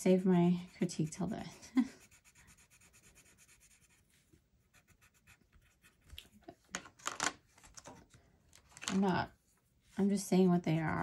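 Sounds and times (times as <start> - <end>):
pencil scribbling on paper: 0.0 - 6.1.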